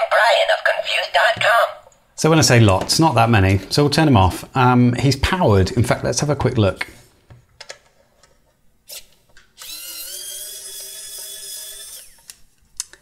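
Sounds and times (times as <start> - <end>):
electric screwdriver whining: 8.9 - 12.4.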